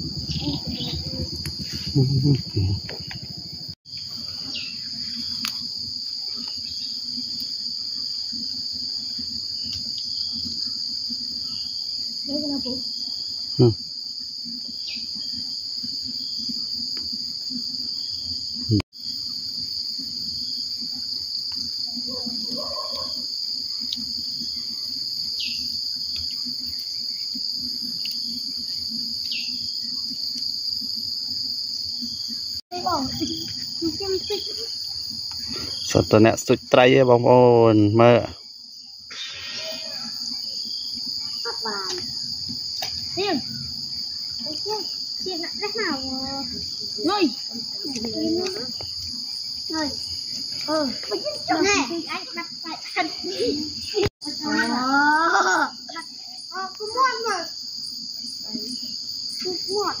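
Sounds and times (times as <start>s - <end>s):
low rough rumble: 0.0s - 3.8s
insects droning: 0.0s - 60.0s.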